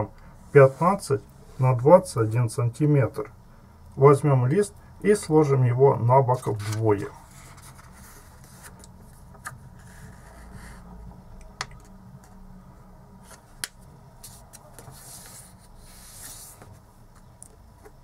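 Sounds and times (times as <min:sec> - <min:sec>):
paper rubbing and sliding: 0:06.4 - 0:08.9, 0:09.8 - 0:10.9, 0:14.2 - 0:16.8.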